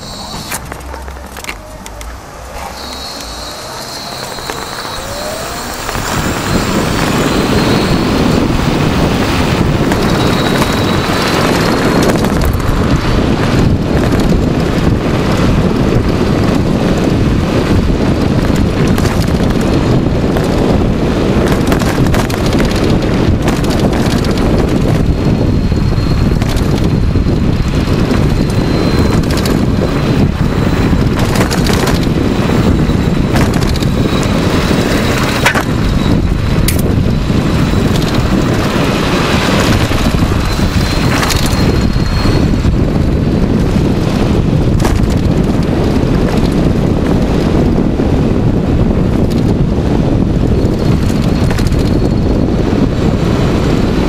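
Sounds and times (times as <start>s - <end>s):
electric motor whine: 0.0s - 14.9s
road and tyre noise: 0.0s - 54.0s
wind over microphone: 0.0s - 54.0s.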